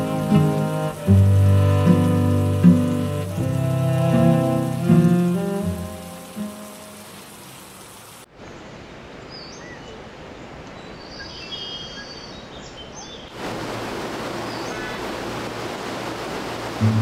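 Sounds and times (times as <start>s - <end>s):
river flowing over rocks: 0.0s - 8.3s, 13.4s - 17.0s
steady background hiss: 0.0s - 17.0s.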